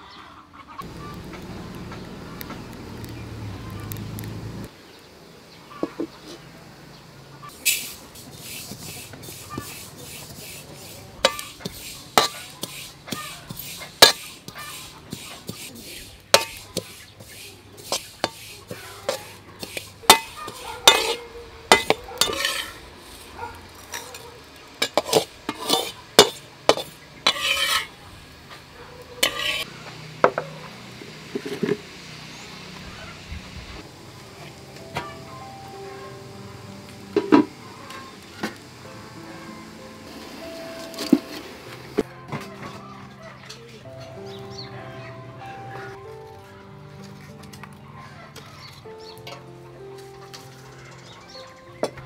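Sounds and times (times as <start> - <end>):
metal spatula scraping wok: 7.4 - 30.4, 31.0 - 32.4, 48.4 - 50.6.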